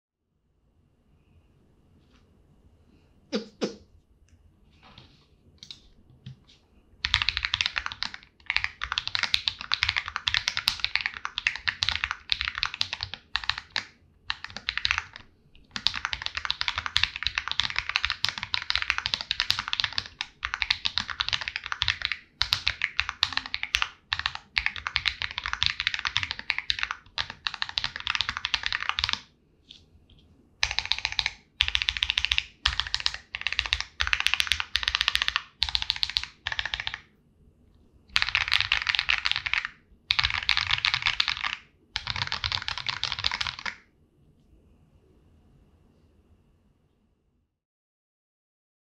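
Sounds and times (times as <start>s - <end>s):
fast typing on mechanical keyboard: 5.6s - 6.4s, 7.0s - 29.3s, 30.6s - 37.1s, 38.1s - 43.8s.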